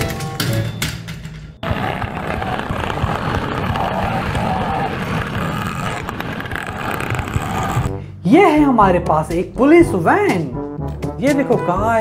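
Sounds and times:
toy wheels rattling on plastic track: 1.6 - 7.9.

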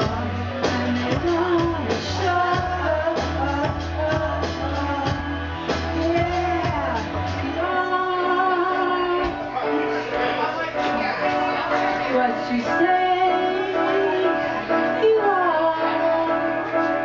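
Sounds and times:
woman singing into a microphone: 0.0 - 9.7, 11.2 - 17.0
amplified backing music: 0.0 - 17.0.

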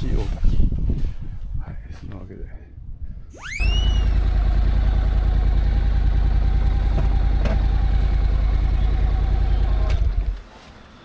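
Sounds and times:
motorcycle engine idling: 3.8 - 10.4.

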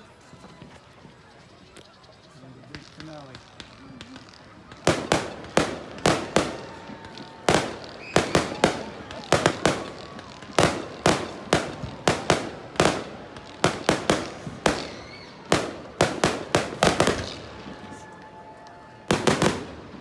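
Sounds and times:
fireworks bangs echoing: 2.6 - 20.0.

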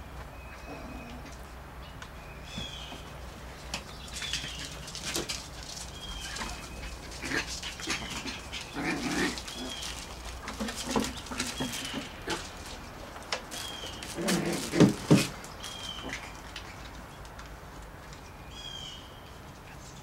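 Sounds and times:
puppies growling and yapping: 0.5 - 1.5, 4.2 - 17.0.

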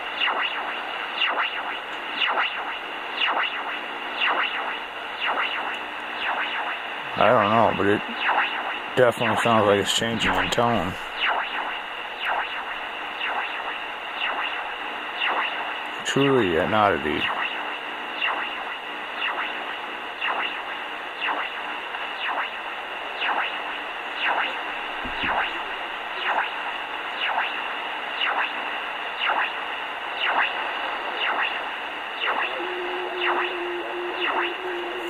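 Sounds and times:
low hum: 0.0 - 16.1, 17.2 - 35.0
static hiss: 0.0 - 35.0
radio chirp sweeping down: 8.0 - 15.8, 30.2 - 35.0.

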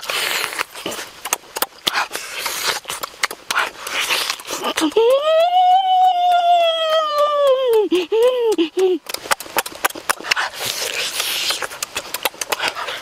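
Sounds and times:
lip-smacking and chewing: 0.0 - 13.0
child calling: 4.8 - 8.6
child's high-pitched cry: 4.8 - 8.7.

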